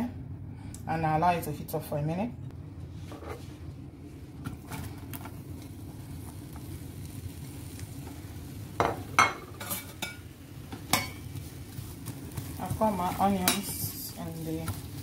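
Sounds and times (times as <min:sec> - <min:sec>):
onions sizzling in oil: 0:04.3 - 0:15.0
spoon knocking and scraping pan: 0:08.8 - 0:11.3.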